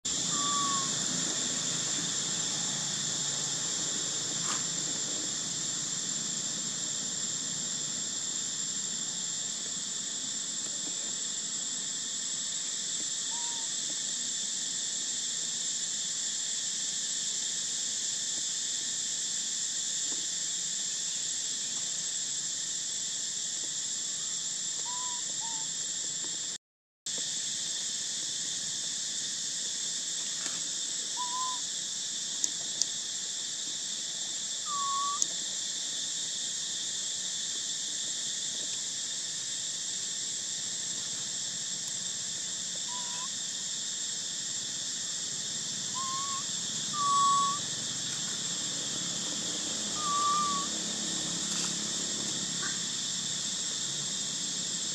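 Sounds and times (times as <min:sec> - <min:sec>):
forest insects droning: 0:00.0 - 0:54.9
short hooting calls: 0:00.1 - 0:03.6, 0:13.2 - 0:13.8, 0:24.1 - 0:25.7, 0:31.1 - 0:31.7, 0:34.6 - 0:35.4, 0:42.8 - 0:43.4, 0:45.8 - 0:48.0, 0:48.8 - 0:51.0.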